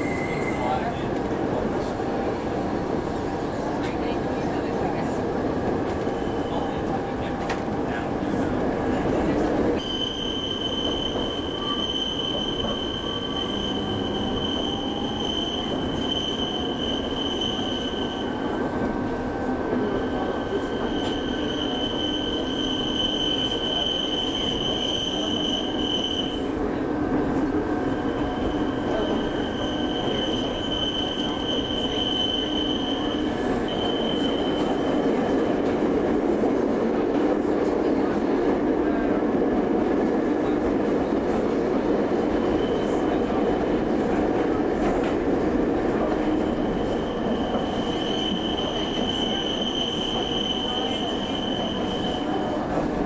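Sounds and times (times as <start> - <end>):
train running noise: 0.0 - 53.0
high wheel squeal: 9.8 - 18.5, 20.0 - 26.4, 27.9 - 35.0, 46.4 - 52.6.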